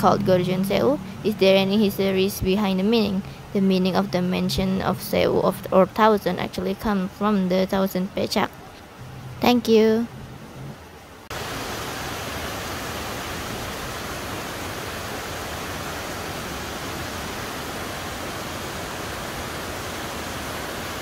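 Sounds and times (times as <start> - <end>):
waterfall rushing onto rocks: 11.3 - 21.0.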